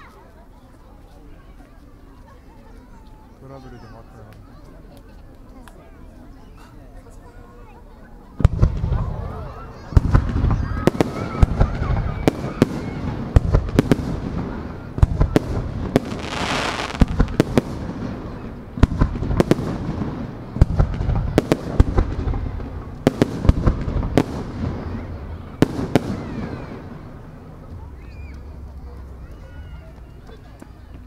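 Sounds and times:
firework shells booming: 9.9 - 27.0
rushing hiss: 16.0 - 17.5.

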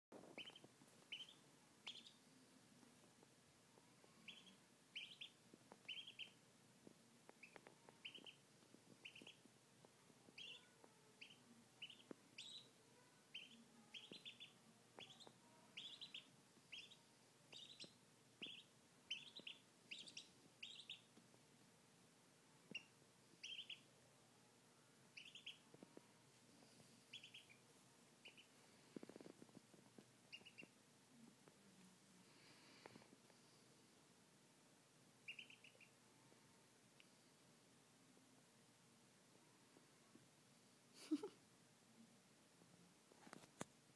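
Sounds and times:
duckling peeping: 0.2 - 2.2, 4.2 - 6.4, 7.3 - 8.4, 9.0 - 9.5, 10.3 - 21.2, 22.7 - 23.9, 25.1 - 25.7, 27.0 - 28.6, 30.3 - 30.8, 35.2 - 36.0.

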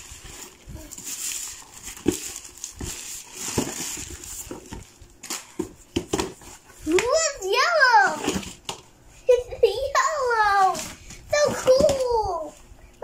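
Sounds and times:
plastic bag crinkling: 0.0 - 5.6.

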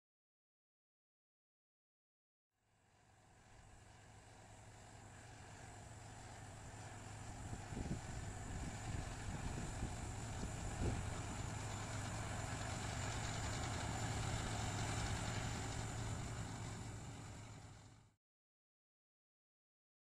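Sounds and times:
farm machine engine running: 3.0 - 18.1.

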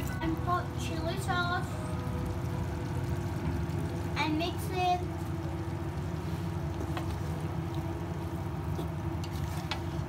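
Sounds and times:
wooden spoon stirring meat in pot: 5.9 - 10.0.

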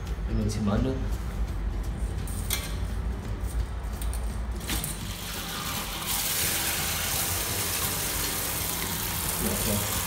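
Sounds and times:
water gushing through hose: 5.3 - 10.0.

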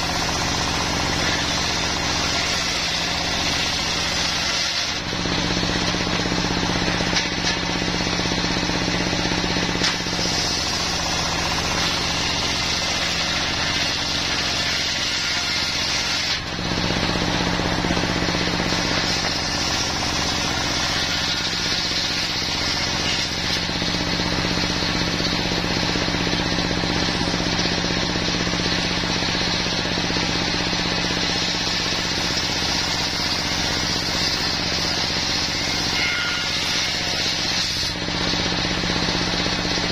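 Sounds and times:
diesel engine drone: 0.0 - 36.0, 37.1 - 39.9
saw blade whining through wood: 0.0 - 39.9.

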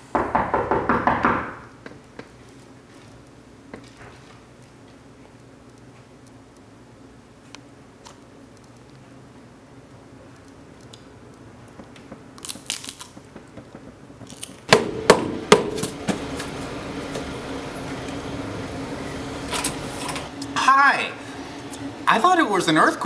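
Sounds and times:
sharp knocks on a door: 0.1 - 1.7, 14.7 - 15.8.

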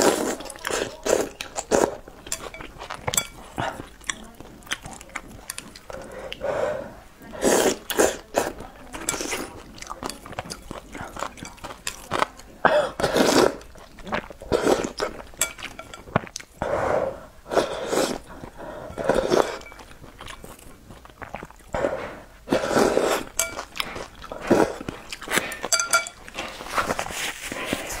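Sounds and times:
person slurping noodles: 0.0 - 2.0, 5.9 - 8.6, 12.9 - 15.2, 16.6 - 19.7, 21.2 - 25.7
chewing: 0.0 - 16.7, 17.5 - 28.0.

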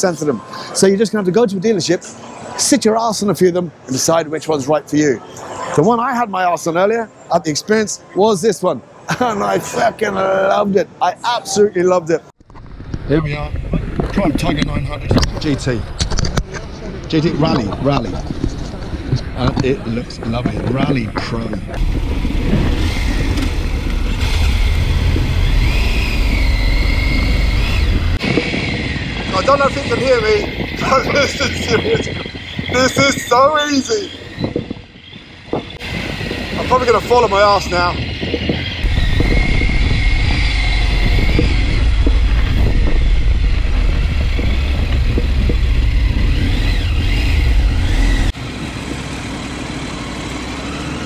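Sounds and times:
motorcycle engine rumbling: 12.4 - 51.0.

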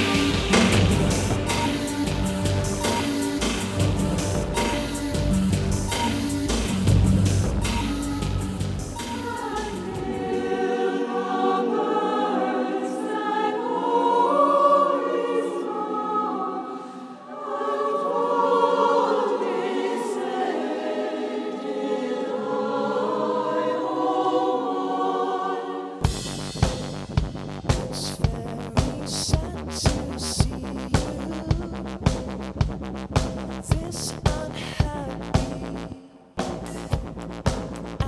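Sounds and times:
band music with steady beat: 0.0 - 10.1
choir singing: 0.0 - 26.1.

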